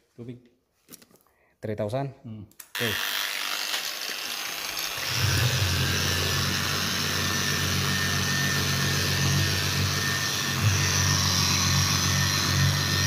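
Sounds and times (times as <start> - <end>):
electric polisher running: 2.8 - 13.0.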